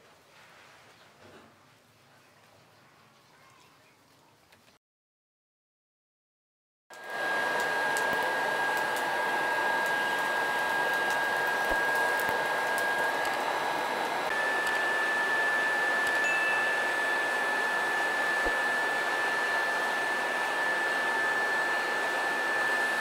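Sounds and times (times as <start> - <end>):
electric air blower whining: 6.9 - 23.0.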